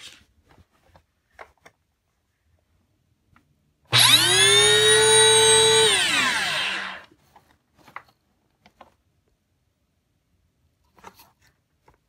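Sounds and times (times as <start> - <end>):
vacuum cleaner motor whine: 3.9 - 7.1.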